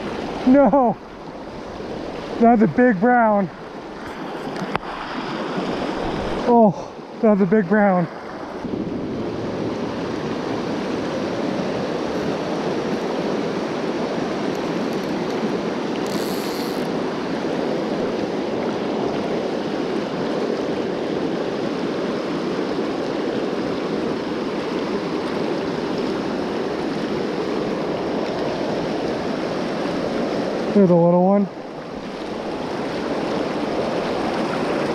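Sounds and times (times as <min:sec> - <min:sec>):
river water rushing over rocks: 0:00.0 - 0:34.9
short high buzz: 0:16.0 - 0:16.9.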